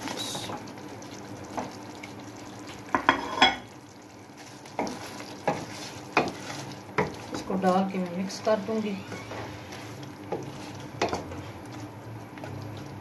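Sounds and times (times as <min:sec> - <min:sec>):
food sizzling in pot: 0:00.0 - 0:13.0
spatula knocking and scraping pot: 0:04.7 - 0:07.5, 0:10.3 - 0:11.3.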